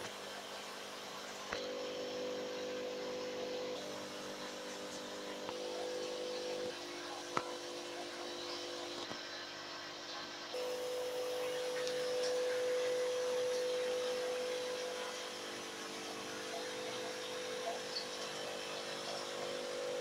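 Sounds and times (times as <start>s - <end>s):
aquarium air pumps humming: 0.0s - 20.0s.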